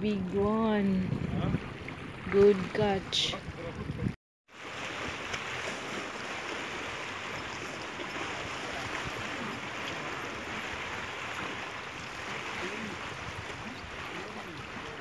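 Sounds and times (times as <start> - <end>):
waves splashing against rocks: 4.6 - 15.0.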